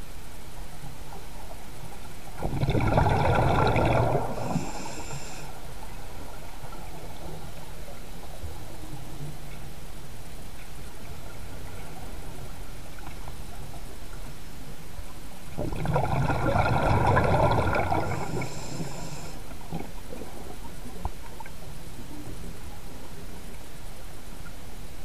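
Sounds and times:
steady underwater hiss: 0.0 - 25.0
bubbles gurgling underwater: 2.4 - 5.0, 15.6 - 19.0.

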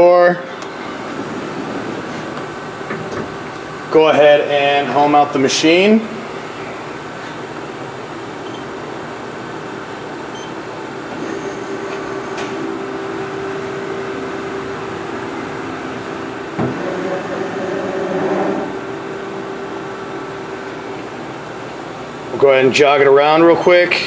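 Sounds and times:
machine slides whining: 11.1 - 21.1.

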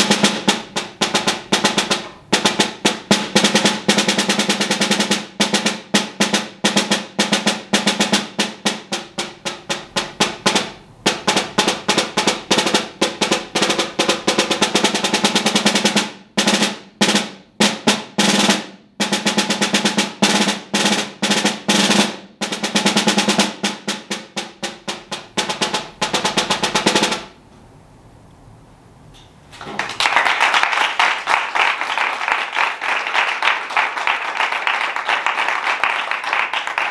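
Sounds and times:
snare drum strokes and rolls: 0.0 - 27.4, 29.6 - 36.9
small group applauding: 29.6 - 36.9.

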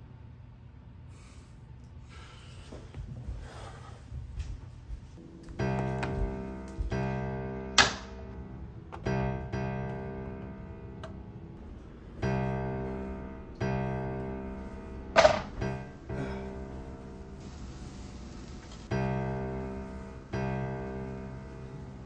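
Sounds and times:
slow solo piano: 18.8 - 22.0.

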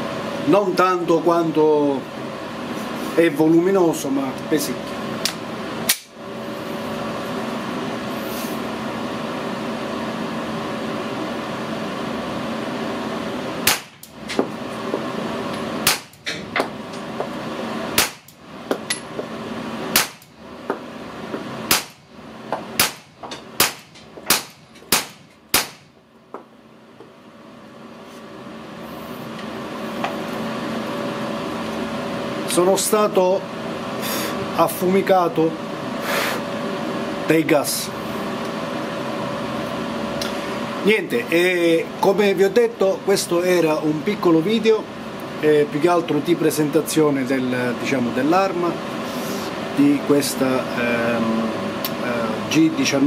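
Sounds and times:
extractor fan humming: 0.0 - 53.0
suppressed pistol shots: 13.6 - 14.0, 19.9 - 20.2, 21.7 - 22.0, 22.8 - 23.0, 23.6 - 25.9.

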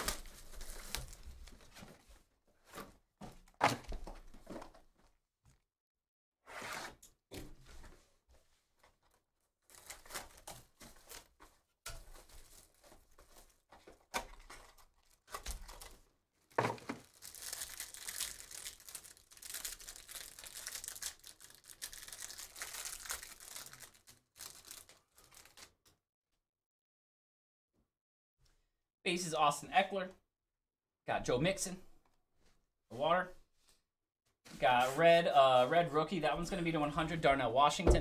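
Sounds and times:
packaging tearing: 0.0 - 1.4, 16.9 - 25.7
plastic wrap crinkling: 0.0 - 1.7, 9.6 - 25.7.

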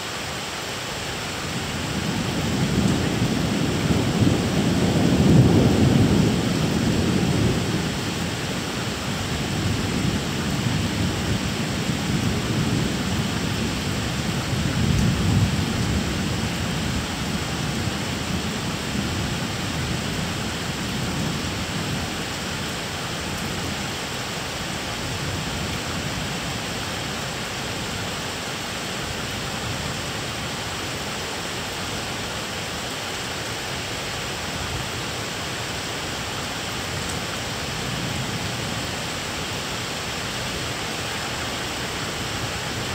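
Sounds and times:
steady rain hiss: 0.0 - 42.9
thunder rumbling: 2.0 - 8.6.

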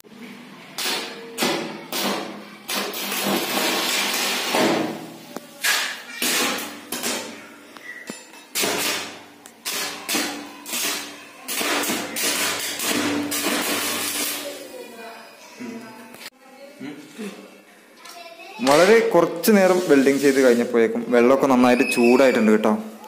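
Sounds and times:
welding arc crackling: 2.7 - 5.2, 9.6 - 14.7.

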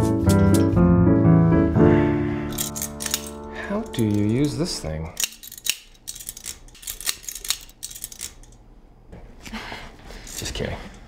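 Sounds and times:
metal instrument clicking: 2.5 - 8.6.

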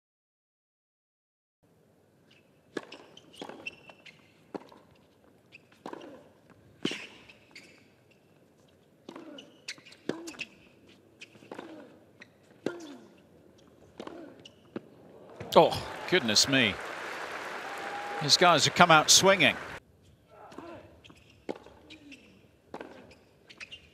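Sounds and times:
tennis racket hitting ball: 2.7 - 4.9, 5.8 - 7.3, 13.9 - 14.9, 22.7 - 23.2.

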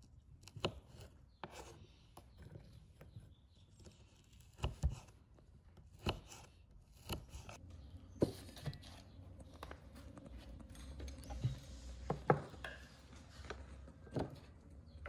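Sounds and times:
knife cutting on wooden board: 3.7 - 5.2, 5.8 - 7.6.

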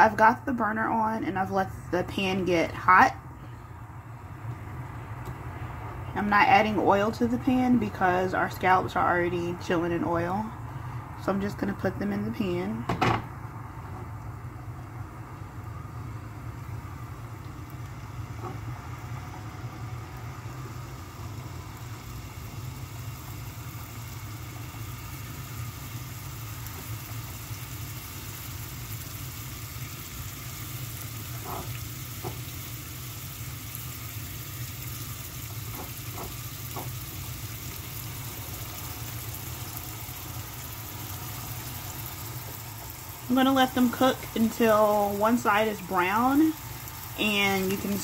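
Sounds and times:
scallops sizzling in frying pan: 15.5 - 48.0.

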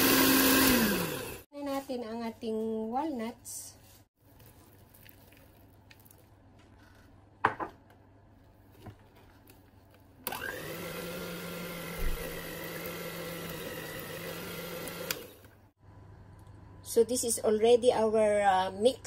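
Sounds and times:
electric hand mixer whining: 0.0 - 1.4, 10.3 - 15.5.

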